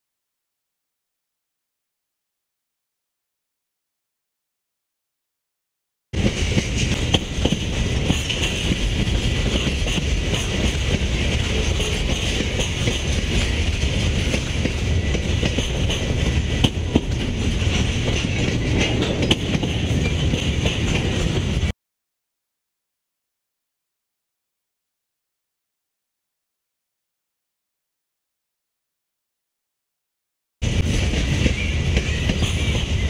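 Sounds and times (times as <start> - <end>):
train wheels rumbling on rails: 6.2 - 21.7, 30.6 - 33.0.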